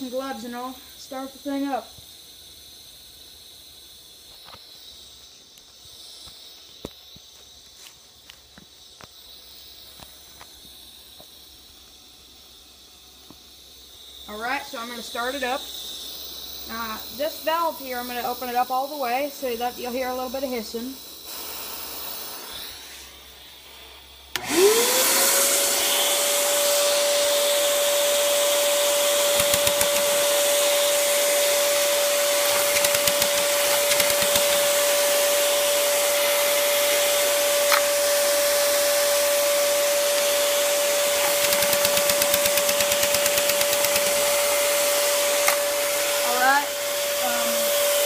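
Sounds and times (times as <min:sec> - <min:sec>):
compressed air hissing: 0:00.0 - 0:48.0
vacuum cleaner motor whining: 0:22.3 - 0:48.0
rapid ticking: 0:29.4 - 0:30.2, 0:32.4 - 0:34.7, 0:41.3 - 0:44.2.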